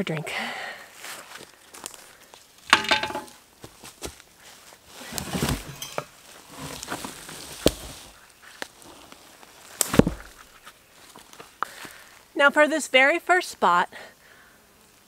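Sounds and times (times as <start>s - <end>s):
sharp knocks: 2.7s - 3.4s
footsteps rustling in dry leaves: 3.5s - 12.3s.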